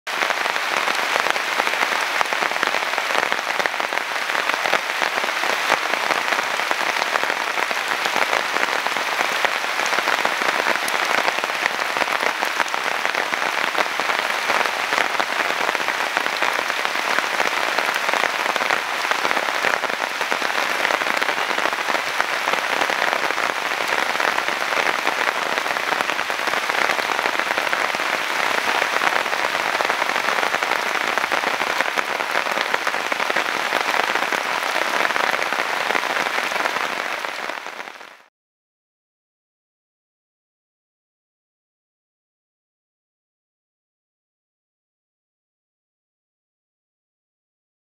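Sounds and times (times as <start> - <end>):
steady rain falling: 0.1 - 38.3.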